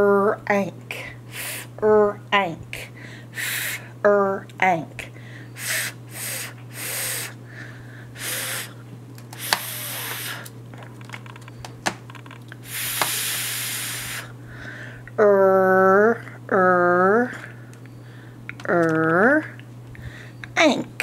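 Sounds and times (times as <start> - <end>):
woman making fff hiss: 1.3 - 1.7, 3.4 - 3.9, 5.6 - 7.4, 8.2 - 8.8, 9.4 - 10.5, 12.6 - 14.4.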